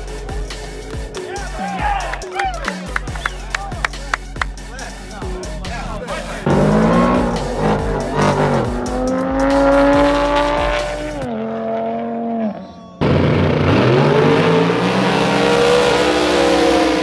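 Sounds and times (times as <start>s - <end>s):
drag racing cars accelerating: 6.1s - 17.0s.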